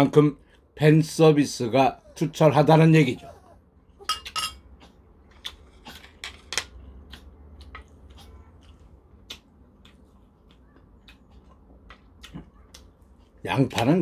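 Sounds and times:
low steady hum: 0:00.0 - 0:14.0
chewing with wet clicks: 0:04.2 - 0:14.0.

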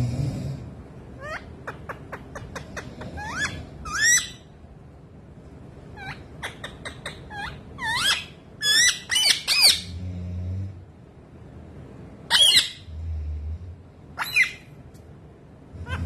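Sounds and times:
parakeet chirping squawks: 0:01.2 - 0:04.5, 0:06.0 - 0:09.9, 0:12.3 - 0:12.9, 0:14.2 - 0:14.7.

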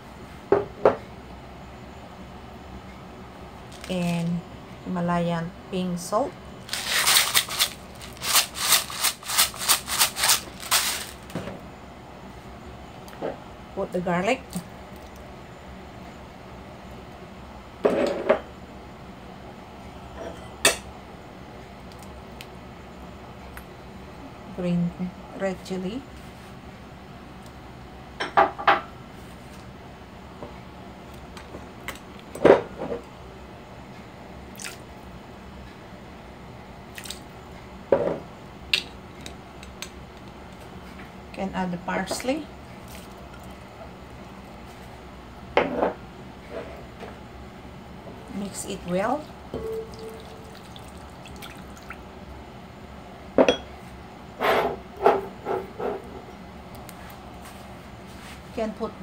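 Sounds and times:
knocks and clinks on glass bowl: 0:49.5 - 0:50.4
liquid pouring: 0:49.6 - 0:52.0.

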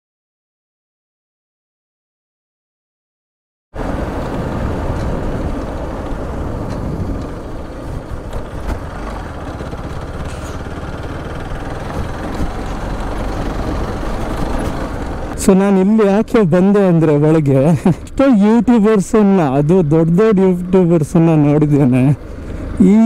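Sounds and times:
wind rumble on microphone: 0:03.8 - 0:10.7, 0:11.3 - 0:15.4
motorcycle engine running: 0:03.8 - 0:23.0.

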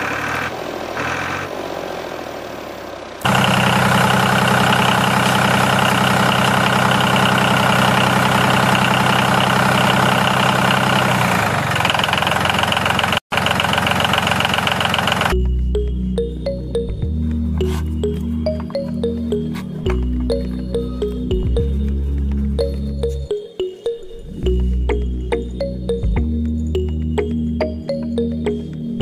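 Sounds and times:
tractor engine idling: 0:00.0 - 0:23.2.

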